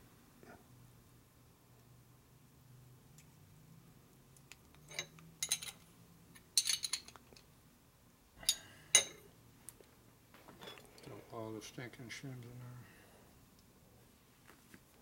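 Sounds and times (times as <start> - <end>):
metal parts clinking: 4.9 - 5.8, 6.6 - 7.2.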